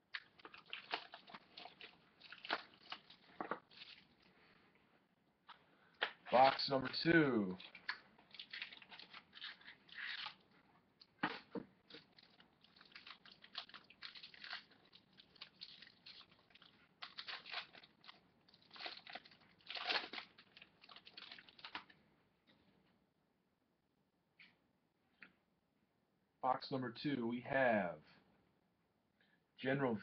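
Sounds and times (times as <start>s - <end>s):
plastic wrapper crinkling: 0.1s - 4.3s, 6.0s - 22.0s.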